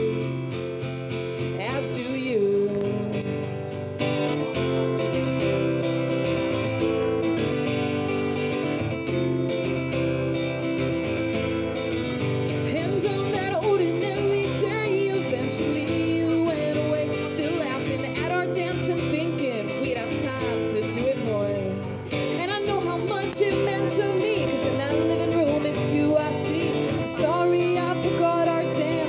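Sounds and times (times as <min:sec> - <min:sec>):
woman singing: 0:00.0 - 0:03.4, 0:12.5 - 0:29.0
acoustic guitar strumming: 0:00.0 - 0:29.0.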